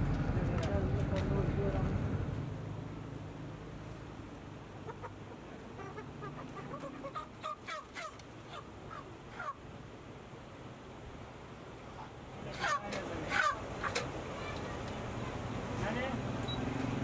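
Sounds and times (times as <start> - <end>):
chicken squawks: 4.8 - 9.6, 12.5 - 14.6
chickens clucking: 4.8 - 9.6, 12.4 - 15.0.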